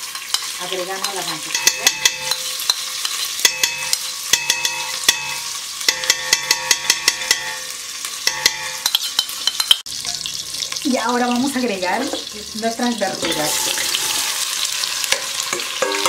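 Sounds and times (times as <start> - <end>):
butter sizzling in hot oil: 0.0 - 16.0
metal spoon clinking on bowl: 0.1 - 10.2.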